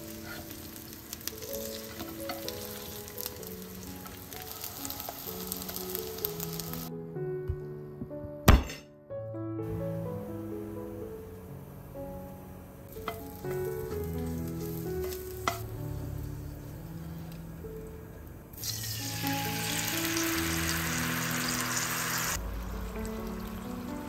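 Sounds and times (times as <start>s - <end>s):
garlic sizzling in oil: 0.0s - 6.9s, 12.9s - 24.0s
sauce hissing in hot oil: 0.0s - 6.9s, 12.9s - 17.9s, 18.5s - 24.0s.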